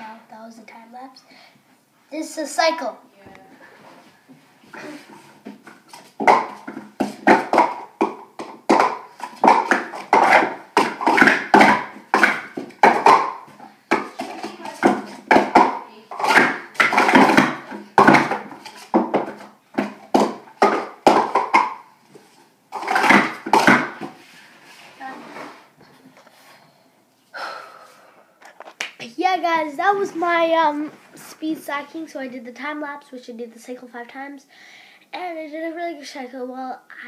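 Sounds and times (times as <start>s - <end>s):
plastic cups clattering: 5.0s - 24.4s.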